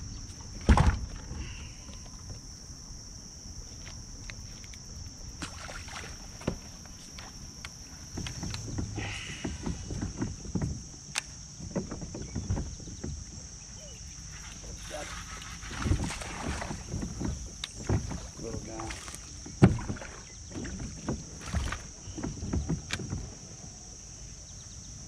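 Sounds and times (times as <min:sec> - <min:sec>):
water lapping against hull: 0:04.8 - 0:25.0
knocks of gear: 0:06.4 - 0:13.4, 0:16.5 - 0:23.4.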